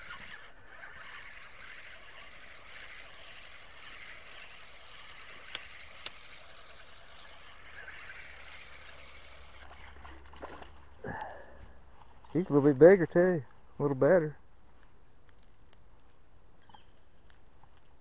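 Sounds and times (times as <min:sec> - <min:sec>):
sharp reel clicks: 0:00.0 - 0:10.0
fishing reel gears whirring: 0:00.0 - 0:10.5.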